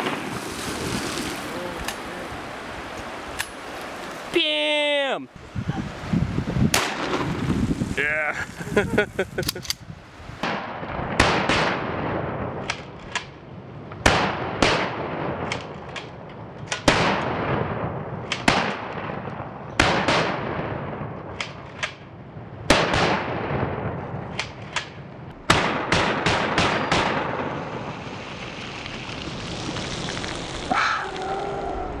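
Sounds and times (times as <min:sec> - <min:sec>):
river rushing: 0:00.0 - 0:06.2
gunshots echoing: 0:06.8 - 0:07.4, 0:10.4 - 0:12.7, 0:14.0 - 0:15.6, 0:16.8 - 0:21.1, 0:22.7 - 0:24.4, 0:25.4 - 0:27.6.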